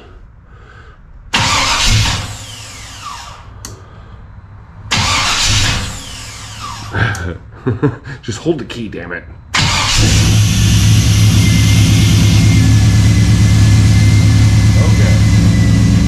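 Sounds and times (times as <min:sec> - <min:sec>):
starter cranking engine: 0:01.4 - 0:03.4, 0:04.9 - 0:07.0, 0:09.6 - 0:13.0.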